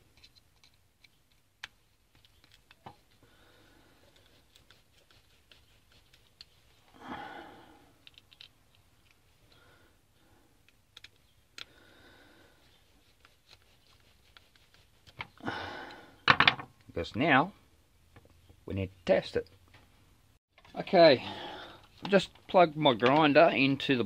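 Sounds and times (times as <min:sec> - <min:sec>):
screwdriver clicking and scraping: 0:00.0 - 0:03.1, 0:08.0 - 0:09.2, 0:10.6 - 0:11.7.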